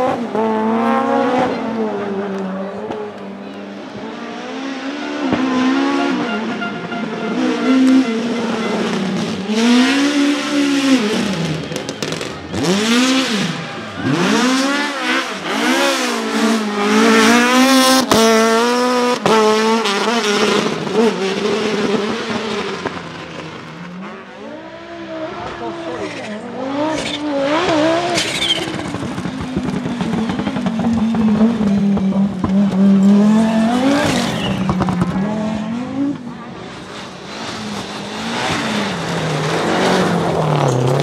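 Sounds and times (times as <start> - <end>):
rally car engine revving: 0.0 - 41.0.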